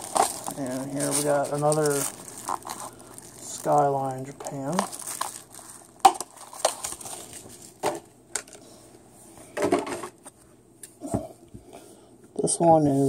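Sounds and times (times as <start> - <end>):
plastic packaging cracking: 0.0 - 7.8
crackling plastic rustle: 0.0 - 8.0.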